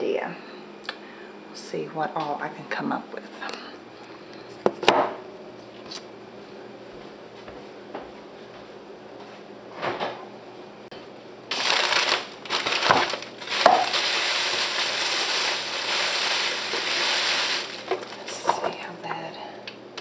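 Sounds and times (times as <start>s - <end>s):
plastic bag crinkling: 11.5s - 18.8s.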